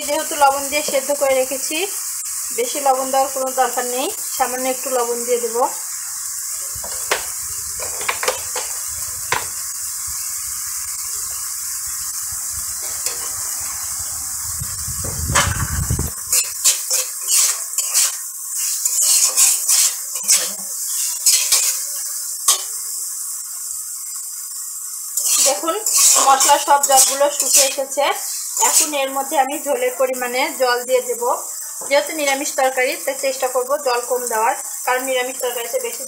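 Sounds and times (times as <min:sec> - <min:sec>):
food sizzling in oil: 0:00.0 - 0:36.0
metal spatula scraping pan: 0:16.3 - 0:21.9, 0:25.2 - 0:29.0.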